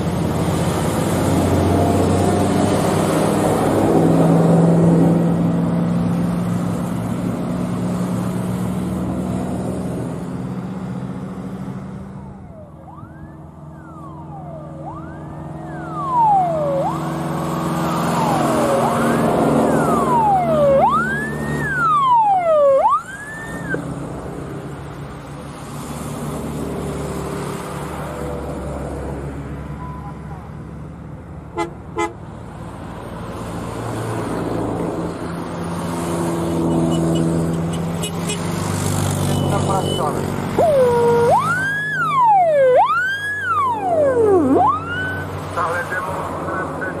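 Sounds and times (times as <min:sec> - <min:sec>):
vehicle siren wailing: 0:12.2 - 0:23.9, 0:39.2 - 0:47.0.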